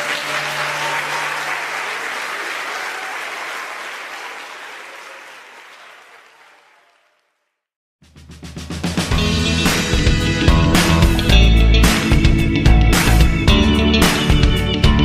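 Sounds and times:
audience applauding: 0:00.0 - 0:07.4, 0:10.8 - 0:14.5.

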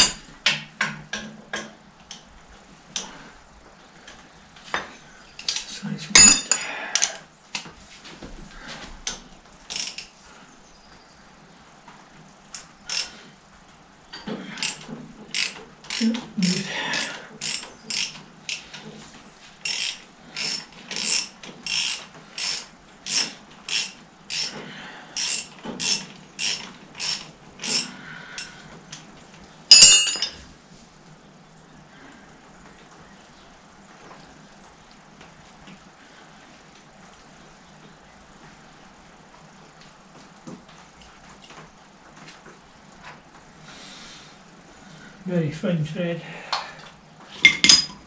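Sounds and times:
sharp metallic clank: 0:06.2 - 0:06.7, 0:29.7 - 0:30.4, 0:47.4 - 0:48.0
ratchet wrench clicking: 0:09.7 - 0:10.1, 0:12.6 - 0:13.1, 0:14.6 - 0:16.1, 0:16.9 - 0:18.6, 0:19.6 - 0:24.6, 0:25.2 - 0:27.9.

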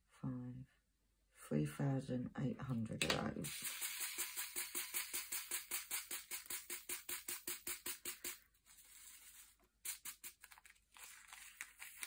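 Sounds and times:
beads rattling in plastic tray: 0:03.5 - 0:11.2.

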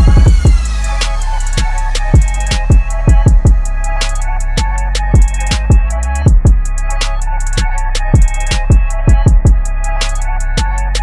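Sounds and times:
deep bass drum hits: 0:00.0 - 0:00.9, 0:02.2 - 0:03.7, 0:05.2 - 0:06.7.

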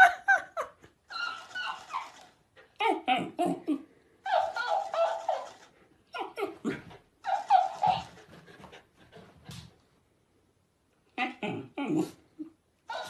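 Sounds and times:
dog barking and grumbling: 0:11.2 - 0:13.0.

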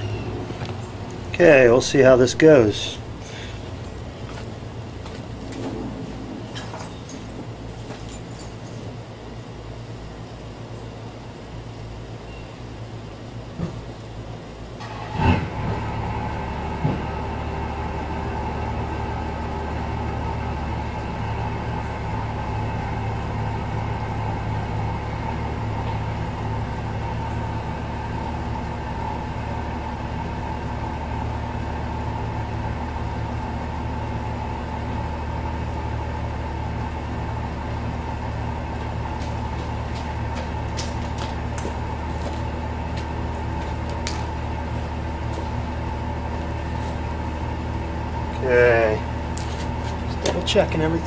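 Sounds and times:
truck engine humming: 0:00.0 - 0:51.0.

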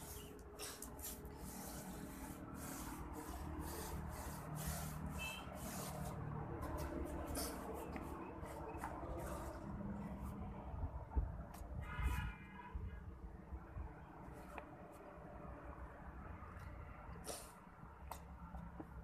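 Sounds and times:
paintbrush scrubbing plaster wall: 0:00.0 - 0:10.5.

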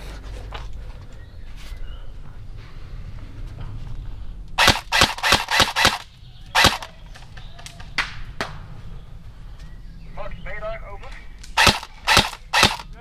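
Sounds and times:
airsoft gun shots: 0:04.6 - 0:06.9, 0:11.6 - 0:12.9.

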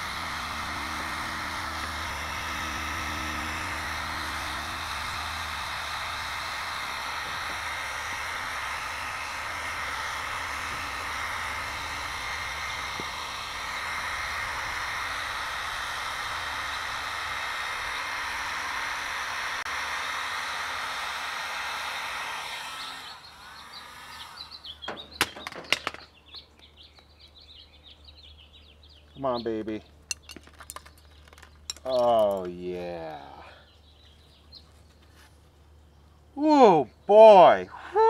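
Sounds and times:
heat gun blowing: 0:00.0 - 0:26.0.

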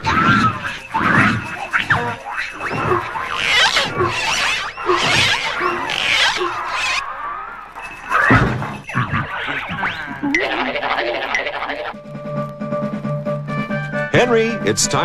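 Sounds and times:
squeaky cartoon stretching noises: 0:00.0 - 0:12.0.

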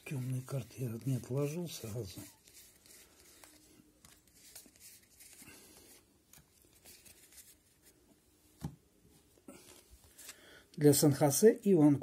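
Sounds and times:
trading cards being shuffled: 0:00.0 - 0:08.0.

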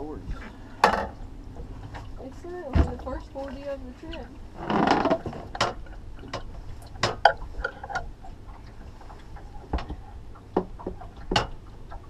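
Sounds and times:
sharp knocks and clicks: 0:04.7 - 0:08.8, 0:09.6 - 0:12.0.

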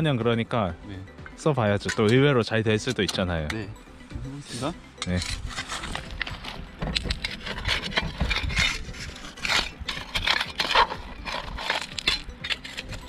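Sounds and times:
shovel scraping through gravel: 0:05.1 - 0:13.0.

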